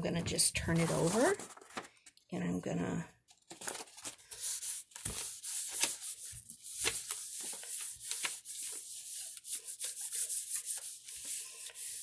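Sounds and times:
hand rubbing on paper: 4.4 - 12.0.

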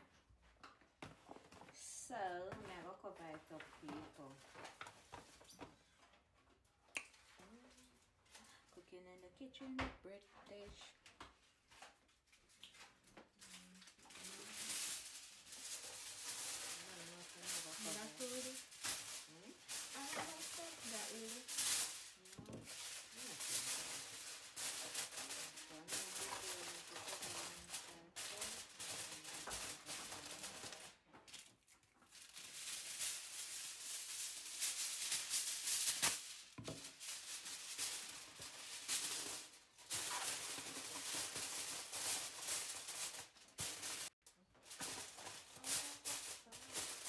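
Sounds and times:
aluminium foil crinkling: 1.4 - 8.8, 10.5 - 47.0.

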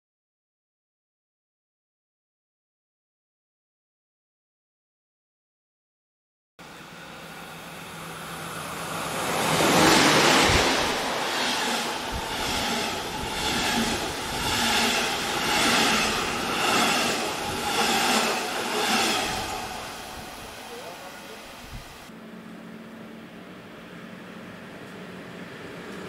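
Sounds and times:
train passing at speed: 6.6 - 26.0.

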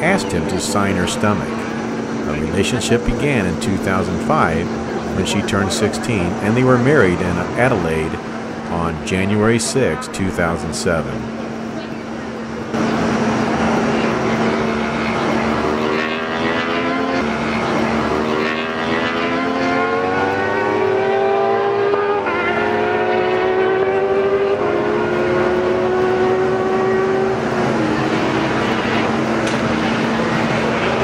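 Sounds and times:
steady background hum: 0.0 - 16.4
racing motorcycle engines accelerating: 0.0 - 31.0.

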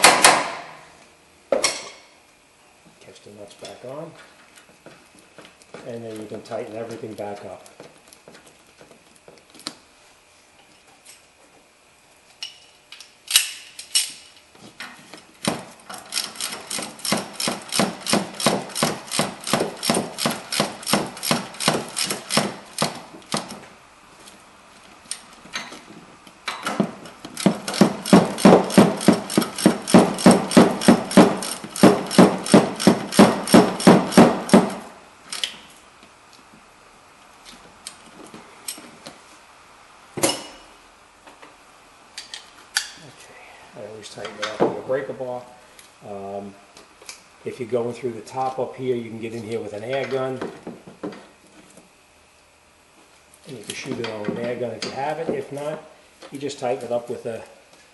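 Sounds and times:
ratchet wrench clicking: 16.1 - 22.5, 27.4 - 34.0.

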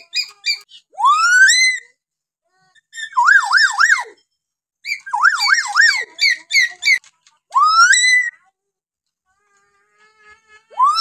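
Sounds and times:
bird siren-like calls: 3.1 - 4.2, 4.9 - 7.0, 10.8 - 11.0.

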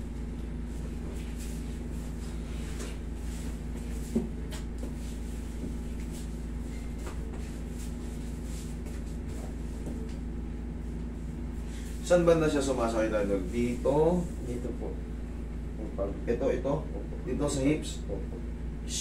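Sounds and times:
air conditioner humming: 0.0 - 19.0.

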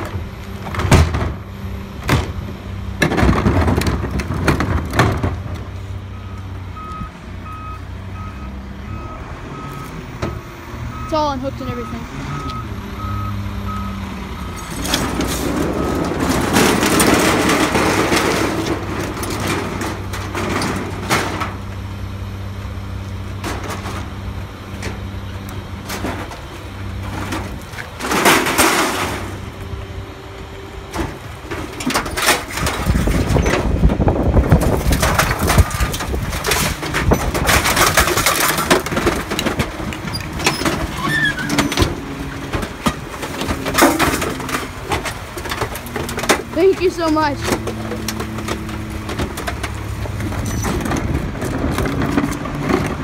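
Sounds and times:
metal crunching and banging: 0.0 - 5.9, 14.0 - 53.0
garbage truck running: 0.0 - 53.0
reversing beeper: 6.1 - 16.3.

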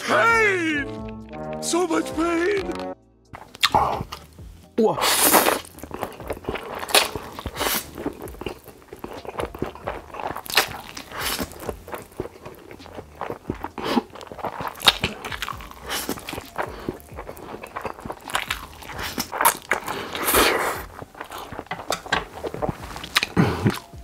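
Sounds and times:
wet chewing: 3.4 - 24.0
man slurping noodles: 5.0 - 8.4, 13.1 - 15.2, 15.8 - 21.7.

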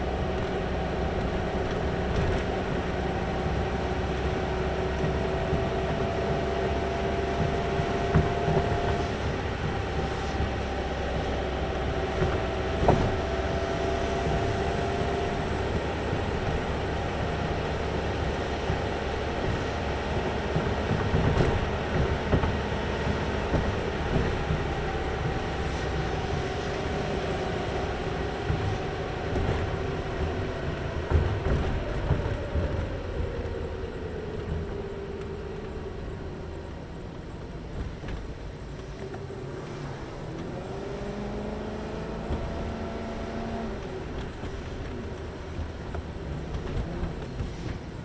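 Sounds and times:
car engine: 0.0 - 48.0
tyre and road rumble: 0.0 - 48.0.

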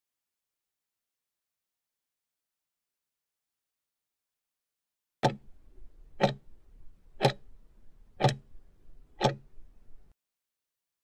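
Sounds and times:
clock-like timer ticks: 5.2 - 5.5, 6.1 - 6.6, 7.2 - 8.6, 9.2 - 9.5.

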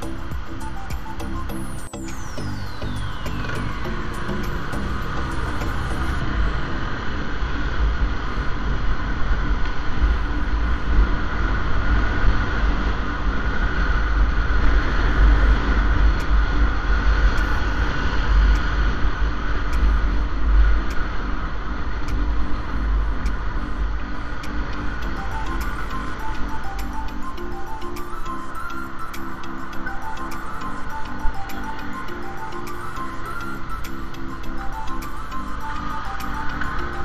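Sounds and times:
motorcycle engine and road drone: 0.0 - 27.8.

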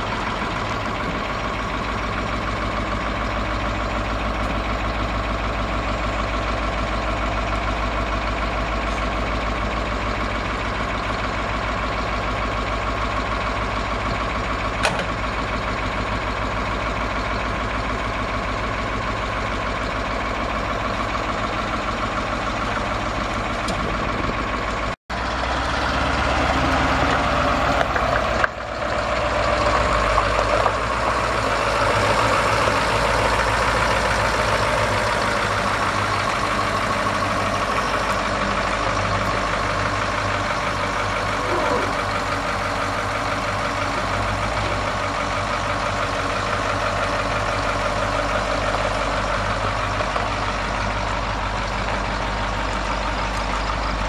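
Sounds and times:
diesel truck engine: 0.0 - 54.0.

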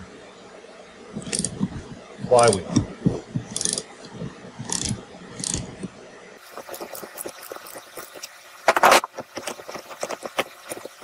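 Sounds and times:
ratchet wrench clicking: 1.2 - 1.5, 3.5 - 3.8, 4.6 - 5.7.

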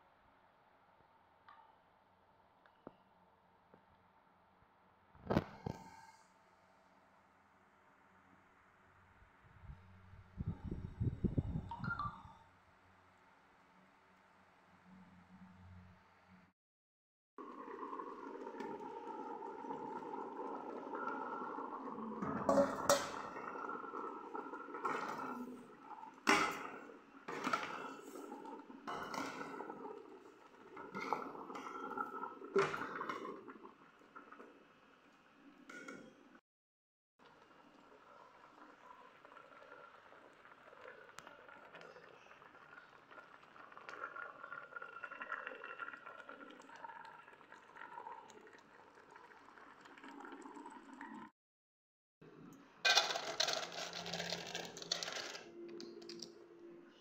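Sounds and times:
water bubbling in a pot: 17.4 - 36.4, 37.2 - 51.4.

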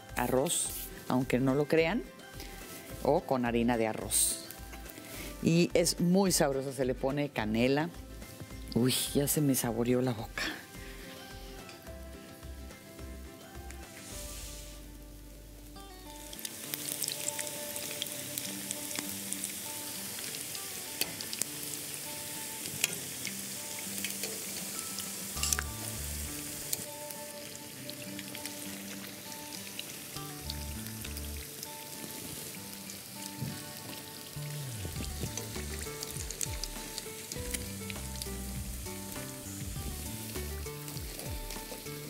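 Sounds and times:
light background music: 0.0 - 42.0
food deep-frying in oil: 15.6 - 42.0.

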